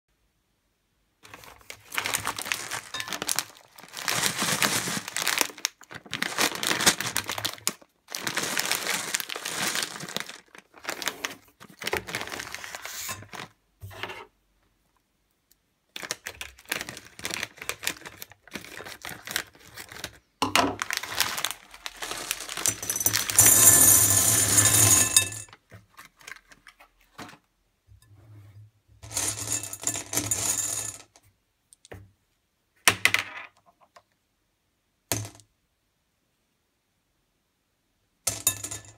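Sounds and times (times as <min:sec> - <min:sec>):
plastic bags crinkling and tearing: 0:01.2 - 0:13.6, 0:15.9 - 0:25.2, 0:25.9 - 0:26.8
candy rattling into a glass bowl: 0:01.3 - 0:11.2, 0:16.0 - 0:25.5, 0:29.0 - 0:31.1.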